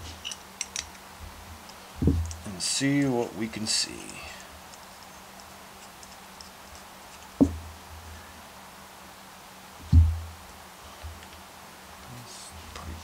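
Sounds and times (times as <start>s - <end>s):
small metal parts clicking: 0.0s - 1.0s
dull thumps: 2.0s - 2.4s, 7.4s - 7.7s, 9.8s - 10.3s.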